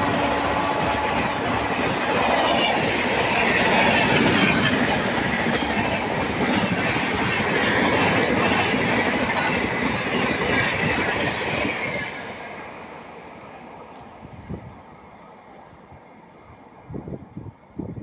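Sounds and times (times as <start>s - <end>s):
train wheels clacking on rail joints: 0.0s - 12.2s
train rushing past: 0.0s - 17.4s.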